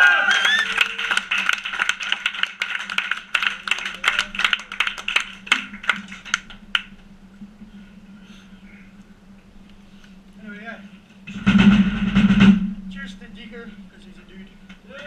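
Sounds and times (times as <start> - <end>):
audience clapping: 0.0 - 6.9
amplifier hum: 3.0 - 15.0.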